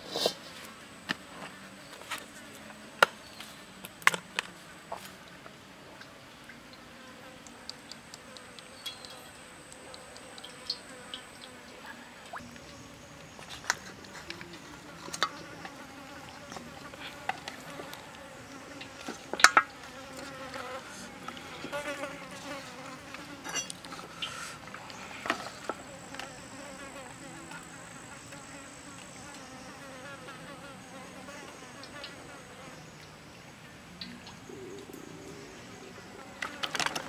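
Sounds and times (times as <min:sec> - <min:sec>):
fly buzzing: 0:06.9 - 0:24.6.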